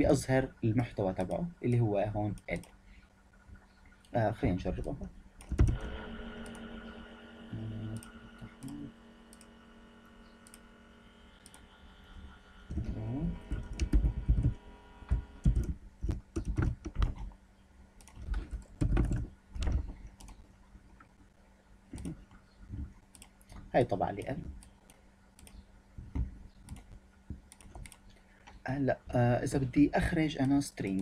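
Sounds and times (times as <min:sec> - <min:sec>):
faint steady hum: 0:00.0 - 0:31.0
computer keyboard typing: 0:04.7 - 0:05.8, 0:12.7 - 0:17.3, 0:18.0 - 0:20.4, 0:24.5 - 0:28.1.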